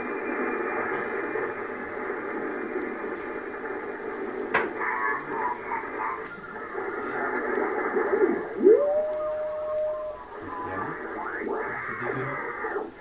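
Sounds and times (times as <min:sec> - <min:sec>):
faint garbled radio signals: 0:00.0 - 0:13.0
radio static hiss: 0:00.0 - 0:13.0.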